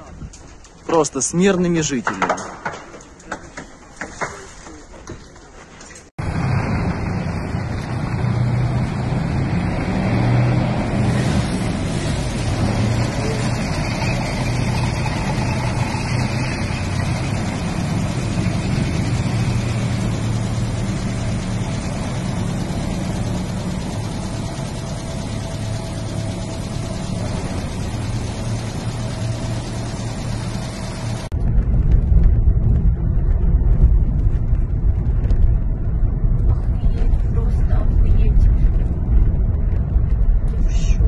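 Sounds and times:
tracked vehicle engine rumbling: 0.0 - 41.0.

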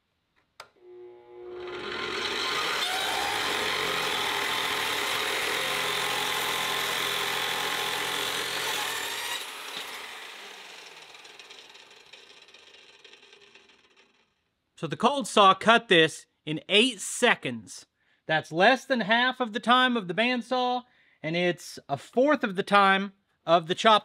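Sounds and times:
saw blade spinning down: 0.8 - 14.3
saw cutting through steel: 0.9 - 14.2.

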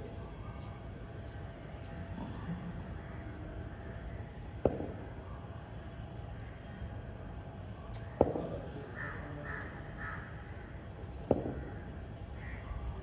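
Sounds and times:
cricket ball being struck: 4.6 - 5.1, 8.2 - 8.5, 11.2 - 11.7.

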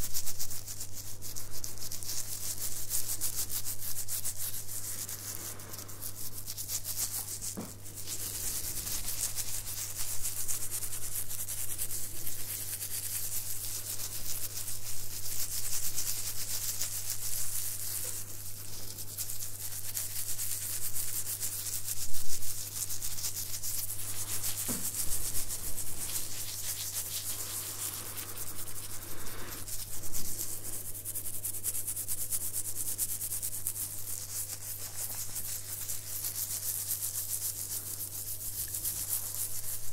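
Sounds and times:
fingers scratching beard on microphone: 1.6 - 39.9
steady low hum: 4.2 - 15.6, 17.4 - 33.1.

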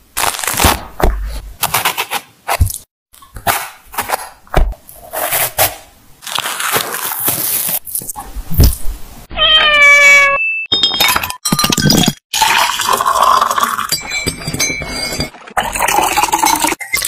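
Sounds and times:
cat meowing: 9.3 - 10.4.

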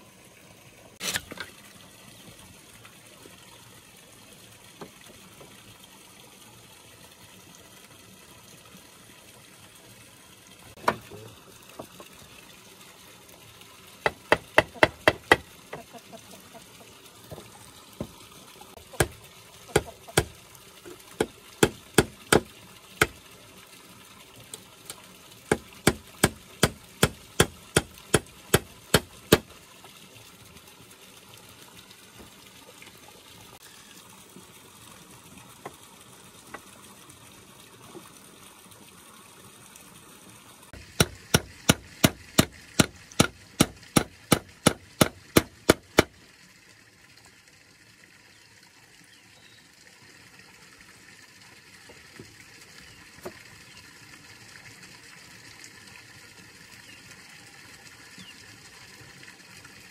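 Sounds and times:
hand tool striking wood: 14.1 - 15.5, 18.9 - 20.4, 21.2 - 23.2, 25.5 - 29.5, 40.8 - 46.1.

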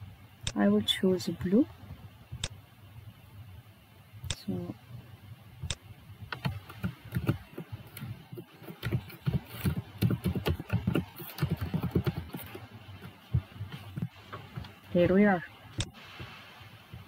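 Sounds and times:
typing on computer keyboard: 5.7 - 13.4.

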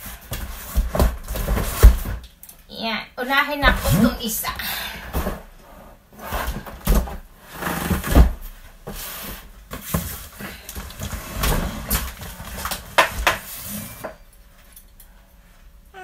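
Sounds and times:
cardboard scraping and rustling: 0.0 - 2.2, 5.1 - 14.1
cardboard box thumps and knocks: 0.3 - 2.2, 6.4 - 7.2.

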